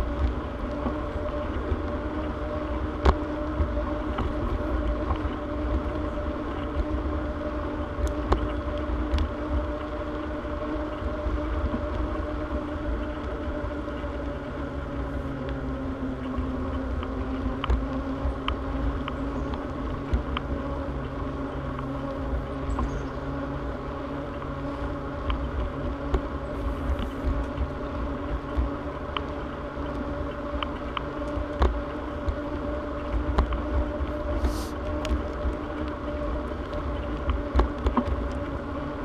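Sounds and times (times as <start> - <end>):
low hum of bicycle riding: 0.0 - 39.0
wind rumble on microphone: 0.0 - 39.0
light clicks and ticks: 16.2 - 21.9, 24.2 - 38.8.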